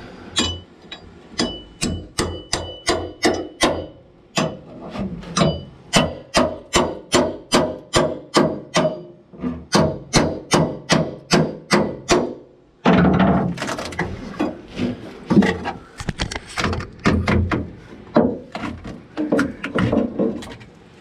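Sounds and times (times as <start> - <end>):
scraping and crunching of rotten wood: 13.4 - 15.8.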